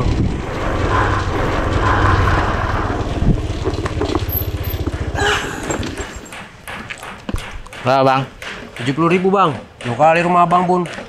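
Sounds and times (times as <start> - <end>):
scooter engine running: 0.0 - 7.3.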